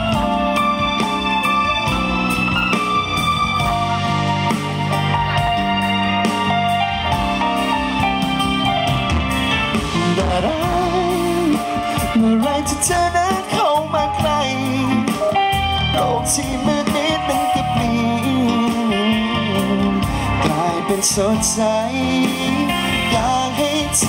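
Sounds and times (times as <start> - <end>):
man singing: 0.0 - 2.1, 9.7 - 24.0
drum kit: 0.0 - 24.0.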